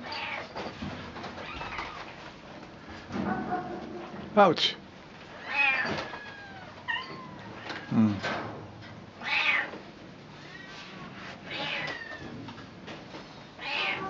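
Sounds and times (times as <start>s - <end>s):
cat meowing: 5.4s - 7.9s, 9.2s - 9.7s, 11.5s - 12.3s, 13.6s - 14.0s.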